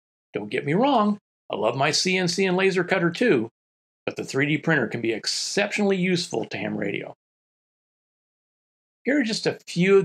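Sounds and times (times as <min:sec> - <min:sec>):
man's voice: 0:00.4 - 0:03.5, 0:04.1 - 0:07.2, 0:09.1 - 0:10.0.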